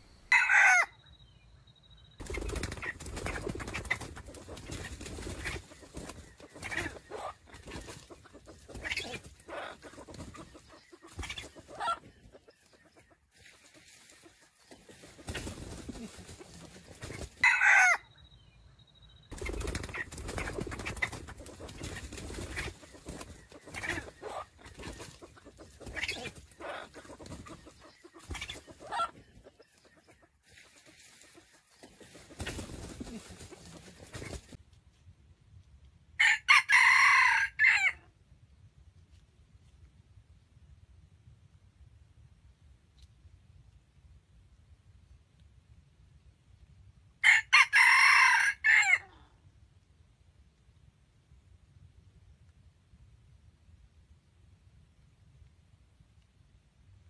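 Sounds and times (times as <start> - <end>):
rooster crowing: 0.3 - 1.0, 36.2 - 38.0, 47.2 - 49.1
wing flapping and scuffling: 2.2 - 17.4, 19.3 - 35.1
chicken clucks: 2.2 - 18.0, 19.3 - 34.6.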